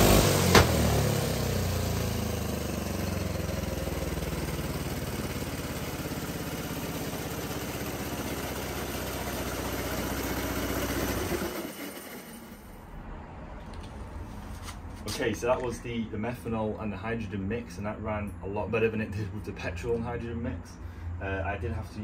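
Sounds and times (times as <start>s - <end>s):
small engine revving and idling: 0.0s - 12.8s.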